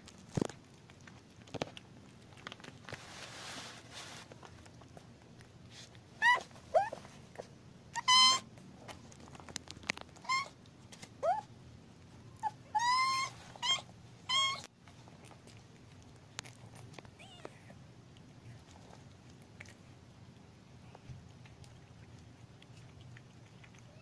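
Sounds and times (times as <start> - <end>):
kitten mewing: 17.2 - 17.8.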